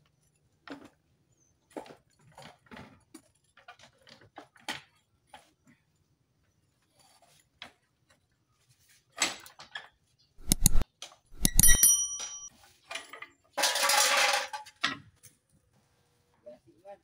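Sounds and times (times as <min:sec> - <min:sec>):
metal tools clanking: 0:11.4 - 0:12.5
ringing metal clink: 0:11.4 - 0:12.5.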